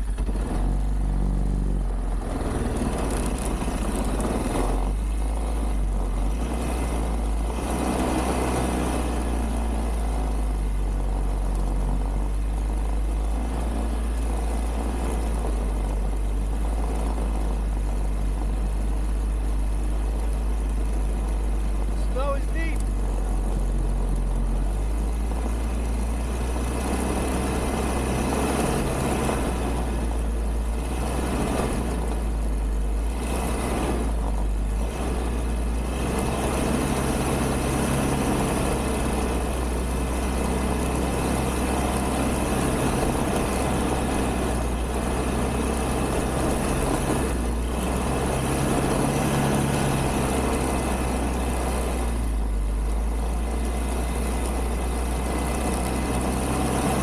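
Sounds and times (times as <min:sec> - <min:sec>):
quad bike engine running: 0:00.0 - 0:57.0.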